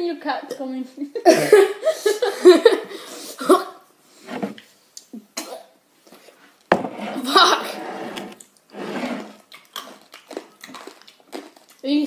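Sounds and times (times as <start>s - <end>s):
boy coughing: 0.5s - 3.8s, 5.4s - 5.7s
boy laughing vocal noises: 7.2s - 7.8s.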